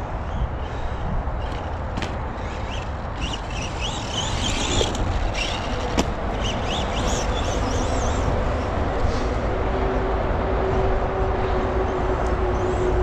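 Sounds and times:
steady rushing noise: 0.0s - 13.0s
toy truck motor whining: 2.4s - 8.3s.

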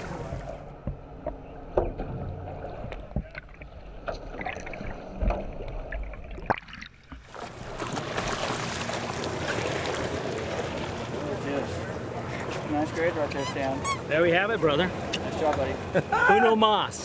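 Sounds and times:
sea water and wind rushing: 0.0s - 17.0s
underwater clicks and knocks: 0.3s - 7.2s.

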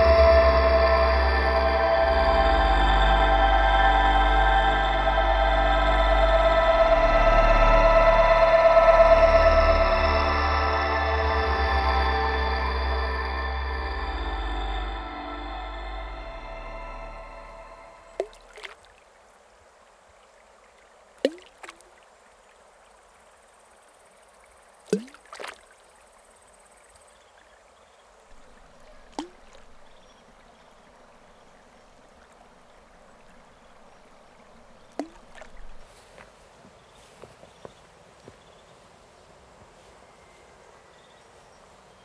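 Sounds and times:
drops plopping into pond water: 18.2s - 18.9s, 21.2s - 22.0s, 24.8s - 25.8s, 28.3s - 30.1s, 33.7s - 35.9s.

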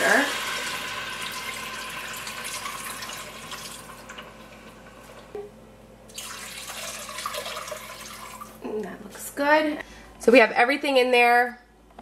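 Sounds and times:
water pouring into steel pot: 0.0s - 4.4s, 6.1s - 8.6s.

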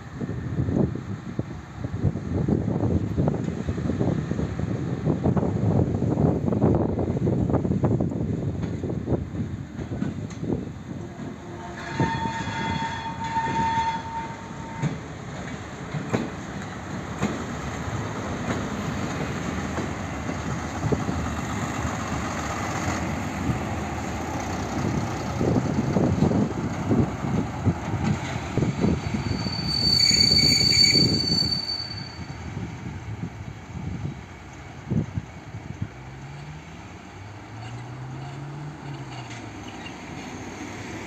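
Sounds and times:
wheels rumbling on rail: 0.0s - 41.0s
high-pitched wheel squeal: 11.6s - 15.0s, 28.8s - 32.6s
held high tone: 29.2s - 32.4s.

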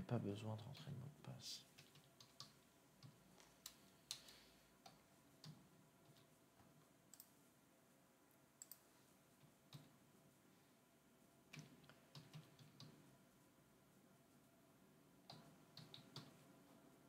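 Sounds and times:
computer keyboard typing: 1.6s - 6.3s, 8.6s - 8.9s, 9.7s - 9.9s, 11.5s - 13.1s, 15.3s - 16.5s.

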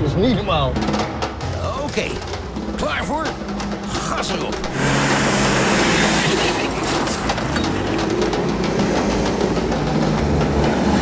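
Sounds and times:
background music: 0.0s - 11.0s
gravel and suspension rattling: 1.8s - 11.0s
off-road vehicle engine: 3.6s - 11.0s.

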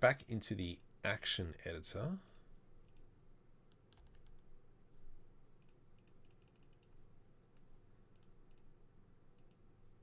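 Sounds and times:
low steady hum: 0.0s - 10.0s
keyboard and mouse clicking: 2.3s - 3.1s, 3.7s - 4.4s, 5.6s - 7.0s, 8.1s - 8.7s, 9.3s - 9.6s.

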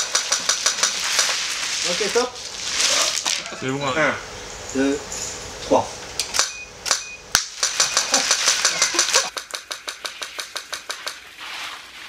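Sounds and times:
short high beeps: 6.4s - 7.2s
camera shutter clicks: 6.4s - 11.2s.

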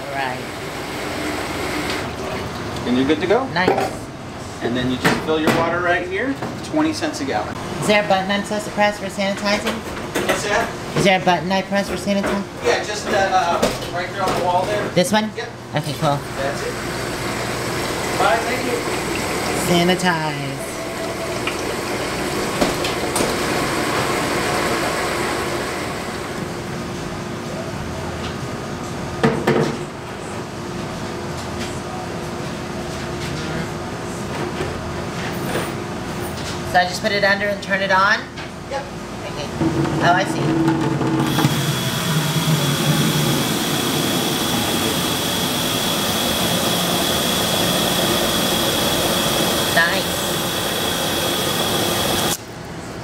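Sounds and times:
high whine: 41.2s - 52.4s
rinse spray hissing: 41.3s - 52.4s.

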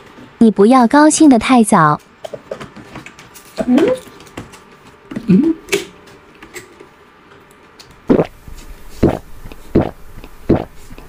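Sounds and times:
person humming mm: 5.2s - 5.7s
loud gulp of drink: 9.8s - 10.8s.

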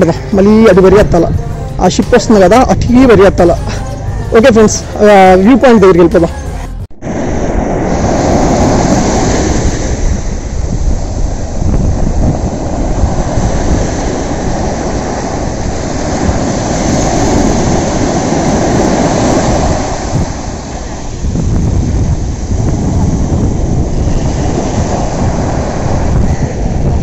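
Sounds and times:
wind rushing over microphone: 0.0s - 27.0s
sea surf washing in: 6.9s - 27.0s.

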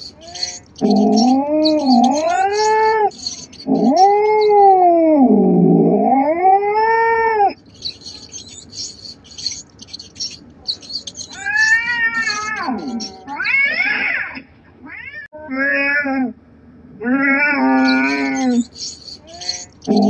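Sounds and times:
faint rapid high ticking: 0.0s - 4.7s, 7.6s - 13.3s, 17.8s - 20.0s
cat yowling: 0.2s - 8.8s, 10.2s - 16.2s, 17.0s - 20.0s.

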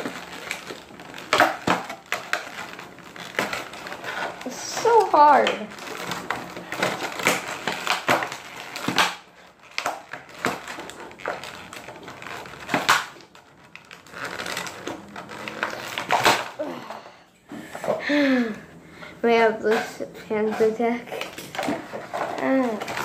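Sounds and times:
plastic packaging crackling: 0.0s - 23.0s.

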